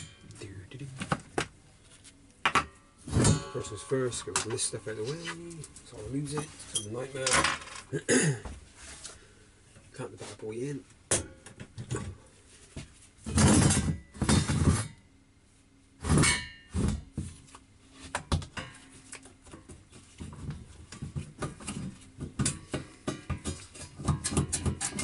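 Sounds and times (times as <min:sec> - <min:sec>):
metal tools clinking and knocking: 0:05.8 - 0:07.9.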